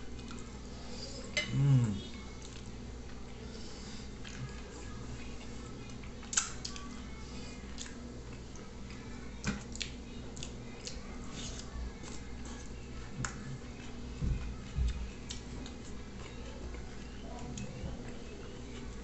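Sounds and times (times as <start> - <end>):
faint background music: 0.0 - 19.0
wet chewing and lip-smacking: 9.7 - 12.6.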